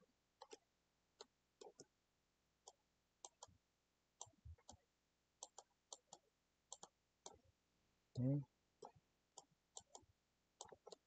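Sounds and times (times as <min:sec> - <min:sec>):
computer mouse clicking: 0:00.4 - 0:00.6, 0:01.2 - 0:01.9, 0:02.6 - 0:03.6, 0:05.4 - 0:07.4, 0:08.8 - 0:11.0.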